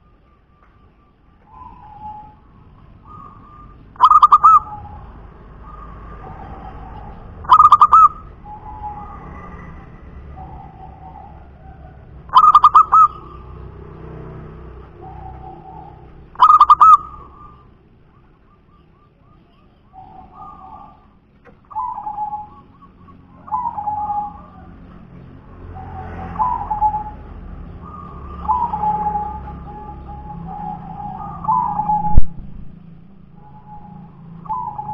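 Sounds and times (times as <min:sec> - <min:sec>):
dove cooing: 0:00.0 - 0:32.5, 0:33.2 - 0:34.9.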